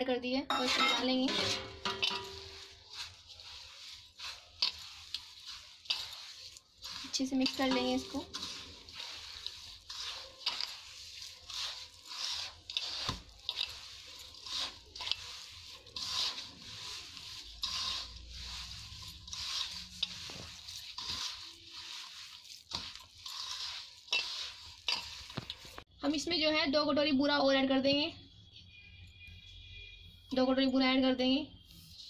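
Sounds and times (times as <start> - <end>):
hand squishing dough in steel bowl: 0.5 - 25.9.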